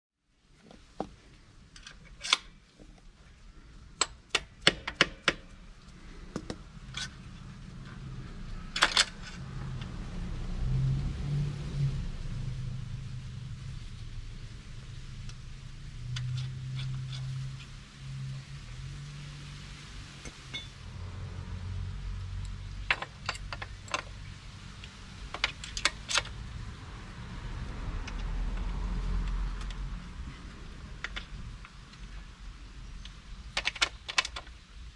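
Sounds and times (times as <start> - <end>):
metallic clicks and taps: 4.0 - 5.5.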